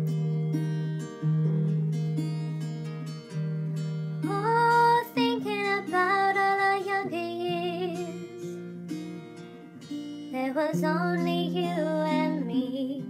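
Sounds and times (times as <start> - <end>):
acoustic guitar: 0.0 - 13.0
high singing voice: 4.2 - 8.6, 10.3 - 13.0.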